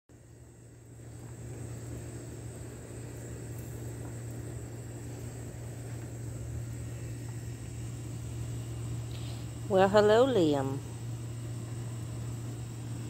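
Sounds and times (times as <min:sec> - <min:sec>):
insects buzzing: 0:00.1 - 0:13.0
low mechanical hum: 0:00.1 - 0:13.0.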